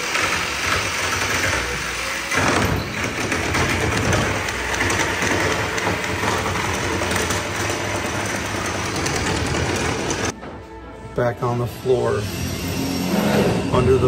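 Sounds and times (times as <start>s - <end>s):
electric jigsaw cutting wood: 0.0s - 10.3s.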